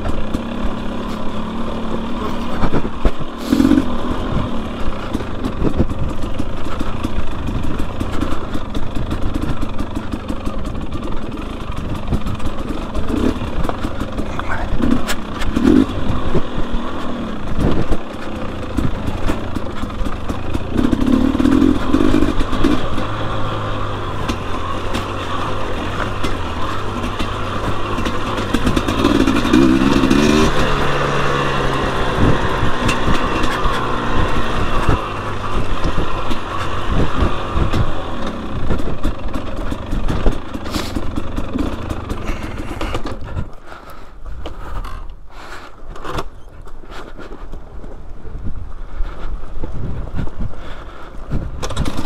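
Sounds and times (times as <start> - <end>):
dirt bike engine revving: 0.0 - 43.8
bike clattering over rough ground: 0.0 - 52.0.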